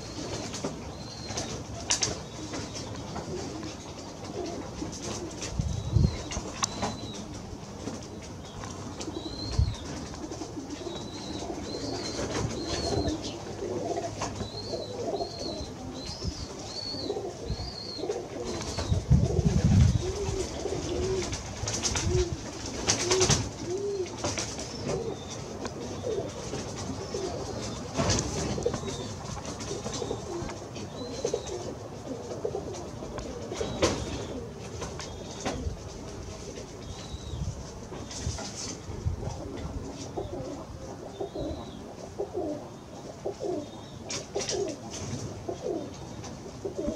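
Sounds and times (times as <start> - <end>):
pigeons cooing: 0.0 - 46.9.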